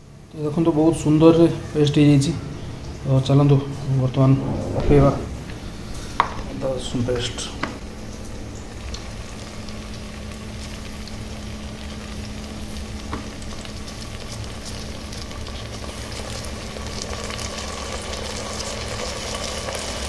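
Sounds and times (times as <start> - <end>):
onions sizzling in oil: 8.6 - 20.0.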